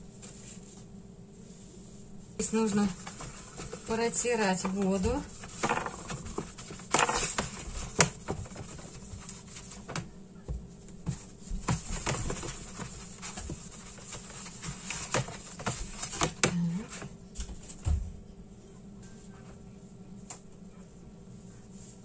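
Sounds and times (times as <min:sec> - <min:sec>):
plastic container knocks and clicks: 0:05.6 - 0:08.6.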